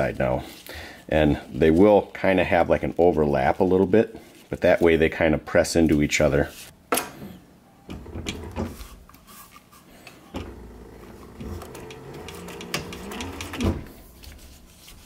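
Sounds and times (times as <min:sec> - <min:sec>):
sewing machine stitching: 0:10.4 - 0:13.9.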